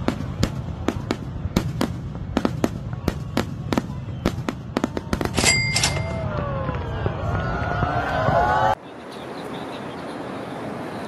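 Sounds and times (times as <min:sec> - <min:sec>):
fireworks cracks and bangs: 0:00.0 - 0:08.5.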